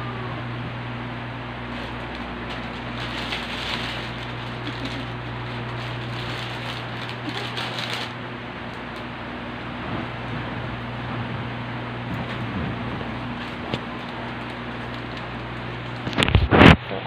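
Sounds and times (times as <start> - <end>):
low hum: 0.0 - 17.0
plastic bag crinkling: 1.6 - 9.2, 13.3 - 16.4.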